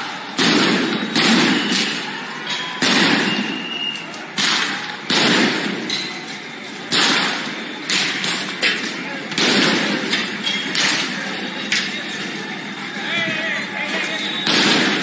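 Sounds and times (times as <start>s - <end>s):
loud bangs with echo: 0.0s - 6.2s, 6.8s - 12.0s, 14.4s - 15.0s
crowd noise: 0.0s - 15.0s.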